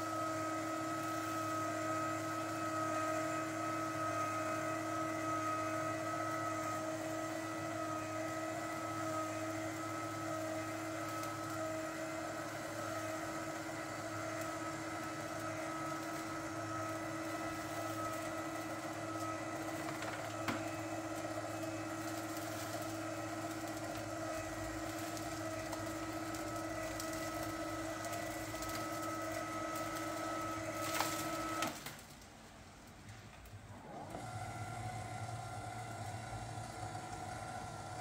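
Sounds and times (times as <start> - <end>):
motor whine: 33.8 - 38.0.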